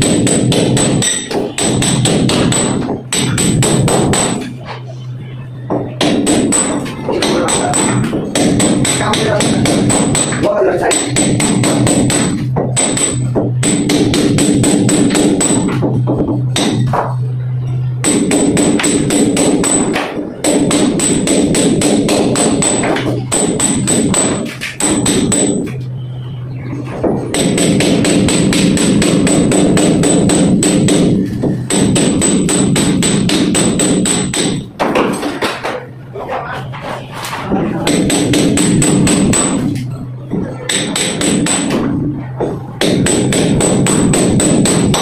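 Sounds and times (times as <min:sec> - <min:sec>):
music with fast percussive beat: 0:00.0 - 0:04.4, 0:05.7 - 0:17.2.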